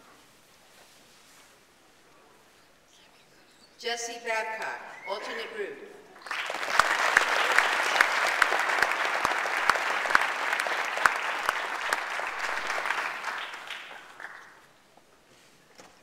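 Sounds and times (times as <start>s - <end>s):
loud sharp claps close by: 6.2s - 14.6s
audience applauding: 6.2s - 14.7s.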